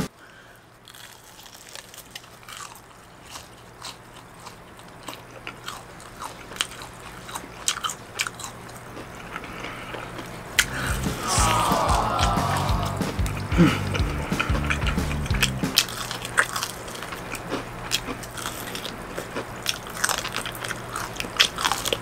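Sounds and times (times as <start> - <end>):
faint steady hum: 0.0 - 22.0
crunchy chewing of fried chicken: 0.2 - 11.0, 11.9 - 22.0.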